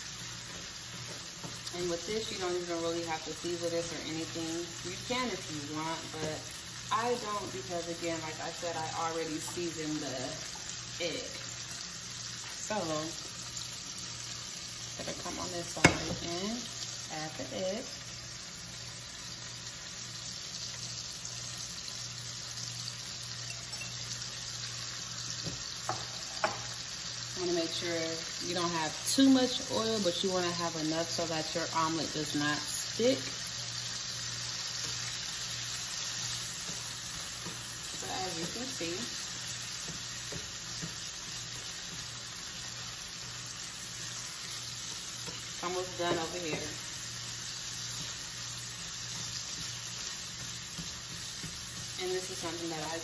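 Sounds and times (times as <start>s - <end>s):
eggs sizzling in hot oil: 0.0s - 53.0s
vegetables and sausage frying: 0.0s - 53.0s
spatula tapping pan: 39.6s - 42.2s, 49.0s - 52.5s.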